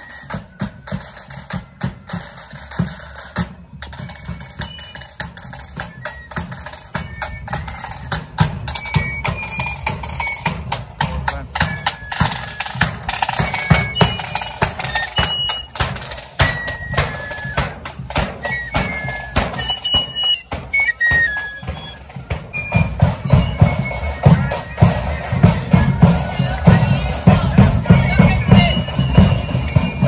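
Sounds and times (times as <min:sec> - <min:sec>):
flute tune: 0:00.0 - 0:30.0
side drums and bass drum: 0:00.0 - 0:30.0.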